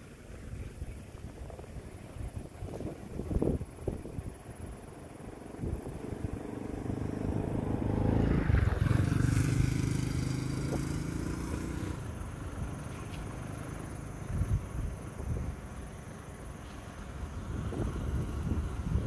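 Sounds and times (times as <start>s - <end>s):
vehicle engine passing by: 5.3s - 14.7s.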